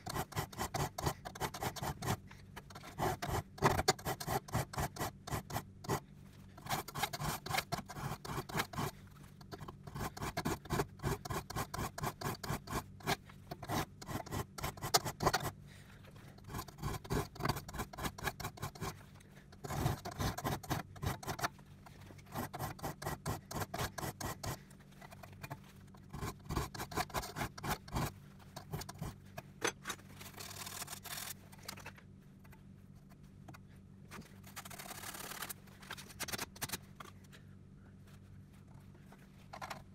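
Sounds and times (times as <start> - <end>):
file rasping on saw teeth: 0.0 - 15.6, 16.3 - 19.0, 19.6 - 21.5, 22.2 - 24.7, 26.0 - 29.2.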